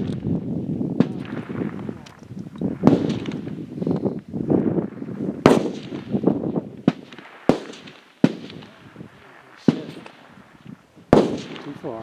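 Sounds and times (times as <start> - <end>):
rifle shots with echo: 1.0 - 2.1, 2.7 - 3.6, 4.6 - 10.5, 11.1 - 12.0.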